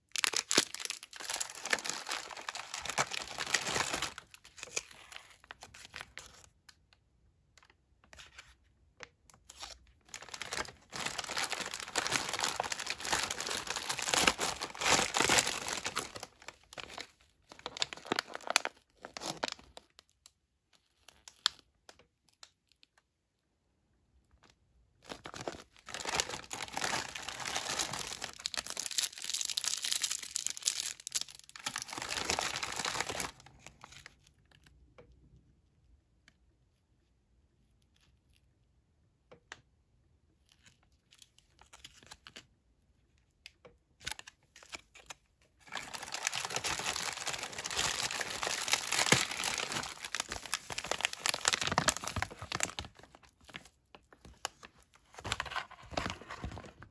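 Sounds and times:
plastic and foil packaging crinkling: 0:00.0 - 0:06.5, 0:09.3 - 0:21.6, 0:25.0 - 0:34.3, 0:44.0 - 0:56.9.

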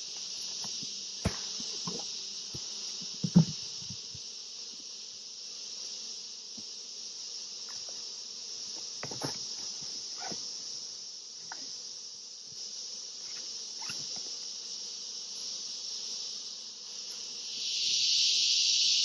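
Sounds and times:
high insect chorus: 0:00.0 - 0:19.0
hive lid knocking on boxes: 0:00.1 - 0:04.3.

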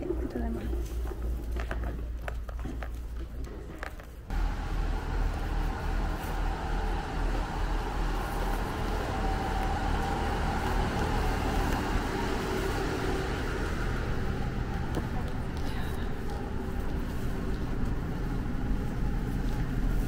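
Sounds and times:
diesel railcar engine idling: 0:04.3 - 0:20.0.

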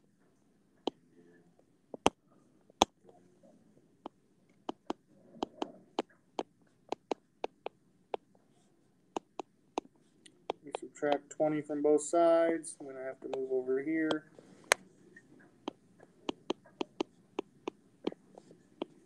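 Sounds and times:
stylus tapping on glass screen: 0:02.0 - 0:03.0, 0:04.6 - 0:08.3, 0:09.2 - 0:10.8, 0:14.1 - 0:19.0.

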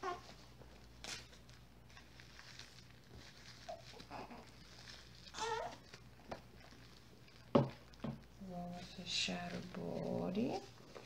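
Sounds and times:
baby whimpering: 0:00.0 - 0:00.4, 0:03.7 - 0:04.6, 0:05.3 - 0:05.8
diaper rustling: 0:00.0 - 0:11.0.

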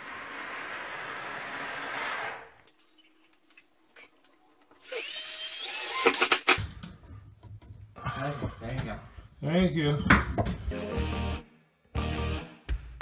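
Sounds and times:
cordless drill whining: 0:04.8 - 0:06.6.

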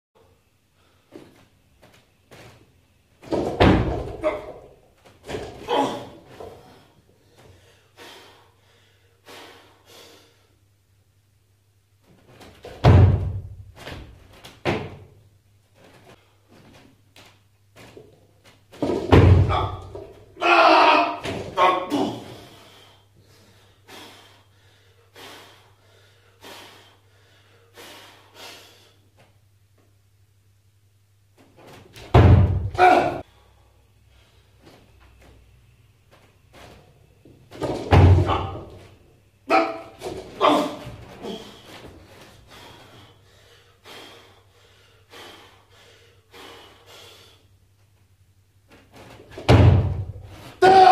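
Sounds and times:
man breathing forcefully: 0:06.0 - 0:10.7, 0:21.9 - 0:29.2, 0:39.8 - 0:47.7.

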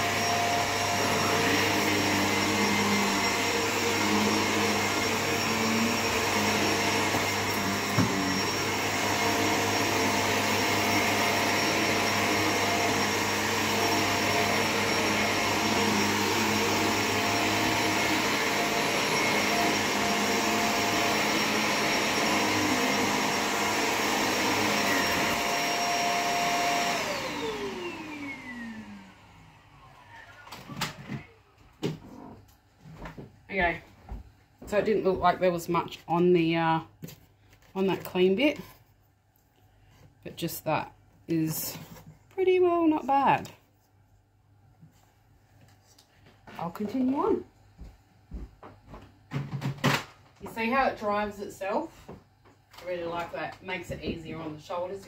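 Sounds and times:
vacuum cleaner running on carpet: 0:00.0 - 0:31.2.

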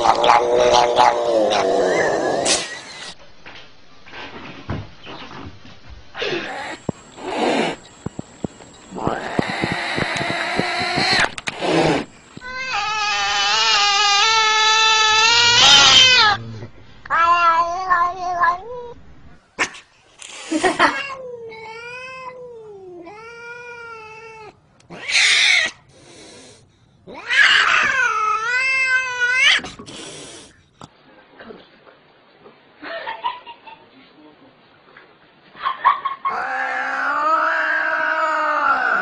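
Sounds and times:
cats yowling: 0:00.0 - 0:02.5, 0:09.0 - 0:11.4, 0:12.0 - 0:16.5, 0:17.1 - 0:19.0, 0:20.8 - 0:25.8, 0:27.1 - 0:29.7, 0:36.3 - 0:39.0
cats hissing: 0:00.0 - 0:03.2, 0:06.2 - 0:19.0, 0:19.6 - 0:30.6.

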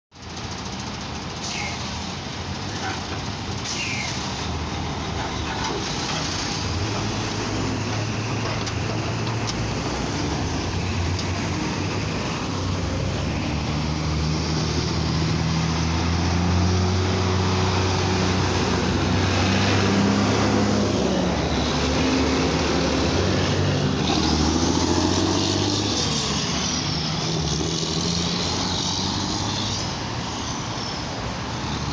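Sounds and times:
diesel truck engines pulling away: 0:00.2 - 0:31.9
passing car traffic: 0:00.2 - 0:31.9.

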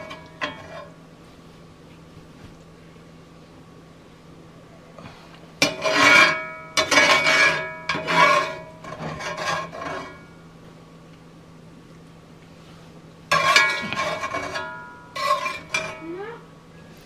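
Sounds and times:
metal spatula scraping skillet: 0:00.0 - 0:01.0, 0:05.6 - 0:10.4, 0:13.3 - 0:16.0.

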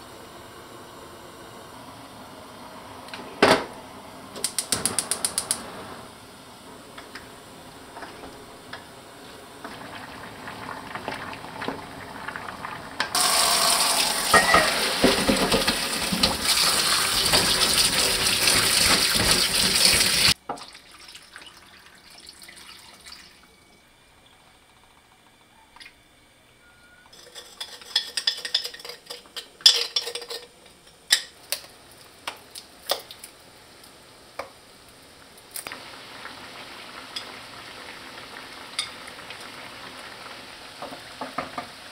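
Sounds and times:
food sizzling in sauce: 0:08.6 - 0:23.4, 0:35.6 - 0:41.9
running water: 0:09.7 - 0:23.5.

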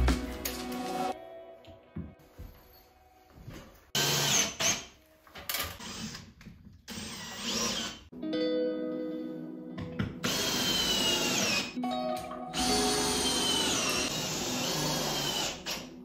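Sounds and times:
background music: 0:00.0 - 0:05.8, 0:08.1 - 0:16.0.

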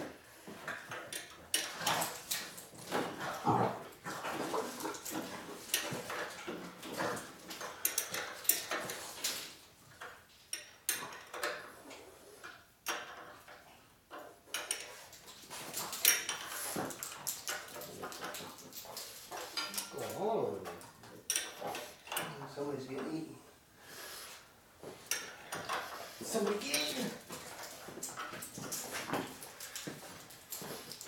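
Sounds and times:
hand tools clinking on metal: 0:04.3 - 0:09.5, 0:14.5 - 0:22.4, 0:24.9 - 0:31.0.

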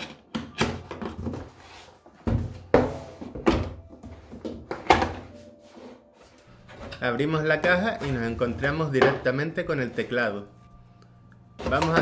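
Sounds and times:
cardboard rustling and scraping: 0:01.1 - 0:03.4.

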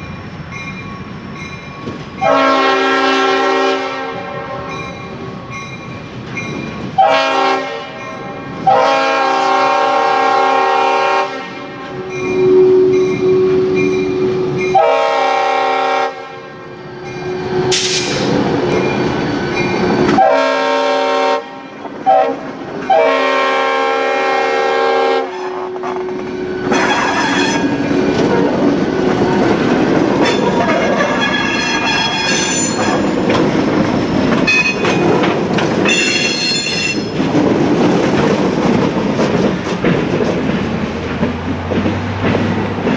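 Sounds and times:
diesel locomotive running past: 0:00.0 - 0:42.9
locomotive air horn blasts: 0:02.2 - 0:04.8, 0:07.0 - 0:13.8, 0:14.7 - 0:16.6, 0:20.2 - 0:25.8, 0:30.2 - 0:33.2.

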